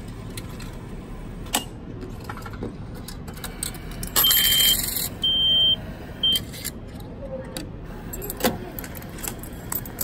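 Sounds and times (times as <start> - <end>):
ticket machine click: 4.0 - 5.1
high beep: 4.2 - 6.5.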